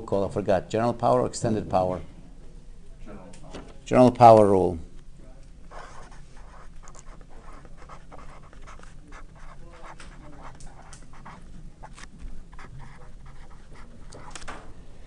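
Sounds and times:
marker writing on whiteboard: 5.6 - 14.4.

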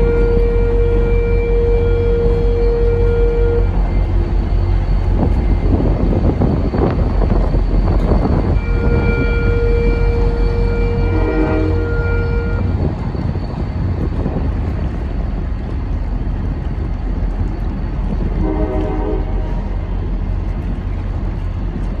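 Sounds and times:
multi-tone train horn: 0.0 - 6.2, 7.8 - 13.0, 18.1 - 20.0
train rumbling across steel bridge: 0.0 - 22.0.

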